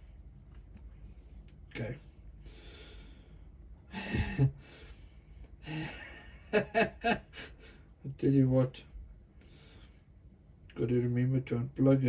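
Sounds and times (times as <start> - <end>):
man chuckling: 3.9 - 4.6, 5.6 - 7.7
man sighing and breathing out: 3.9 - 4.8.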